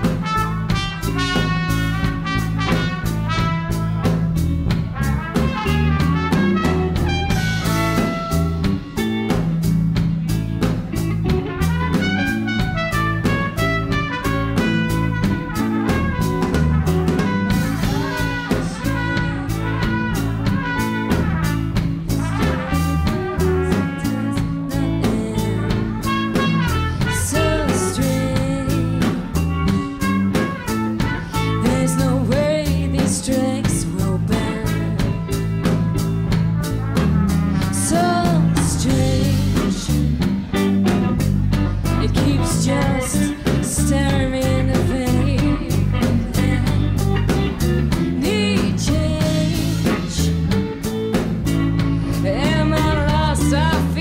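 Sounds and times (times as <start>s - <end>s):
drum kit steady beat: 0.0s - 54.0s
electric bass: 0.0s - 54.0s
electric guitar: 0.0s - 54.0s
woman singing: 17.3s - 21.4s, 22.2s - 35.4s, 37.6s - 40.7s, 41.8s - 50.6s, 51.7s - 54.0s.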